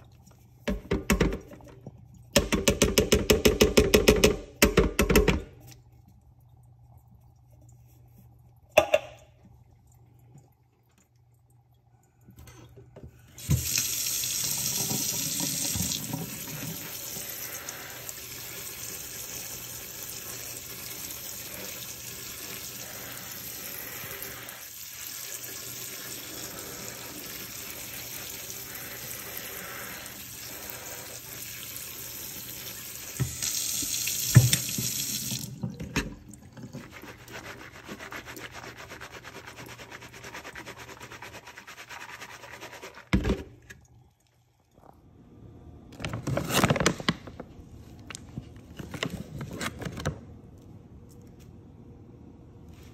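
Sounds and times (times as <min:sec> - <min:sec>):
water spraying into a sink: 0:13.4 - 0:40.6.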